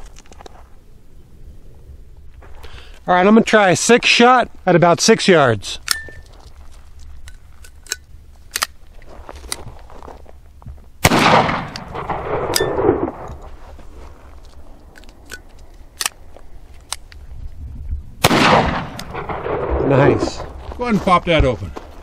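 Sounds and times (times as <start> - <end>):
metallic clicks of gun action: 5.8 - 6.4, 7.1 - 8.8, 14.4 - 17.2, 18.7 - 19.4
pistol broken open click: 7.2 - 8.8, 14.9 - 17.2
pistol shot echoing: 11.0 - 13.3, 18.2 - 19.9.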